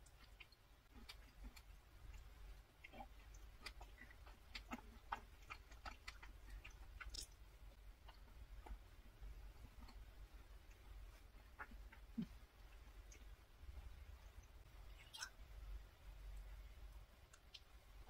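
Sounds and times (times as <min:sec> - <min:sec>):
close-up chewing with crunches: 0:00.0 - 0:13.4.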